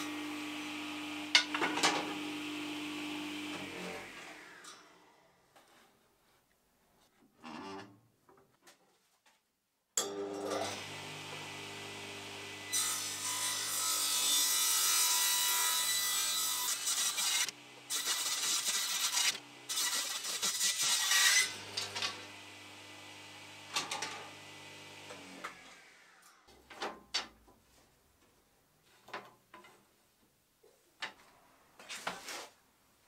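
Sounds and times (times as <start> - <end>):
table saw cutting wood: 0.0 - 4.9, 10.0 - 26.4.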